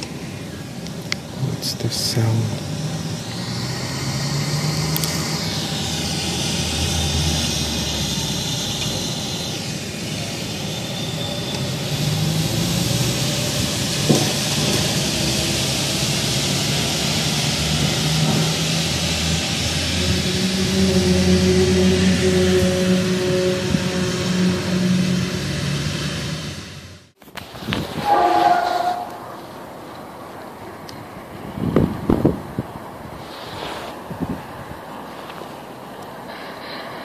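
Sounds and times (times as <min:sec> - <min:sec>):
long low droning tones: 0:00.0 - 0:27.2
steady rushing noise: 0:00.0 - 0:28.4.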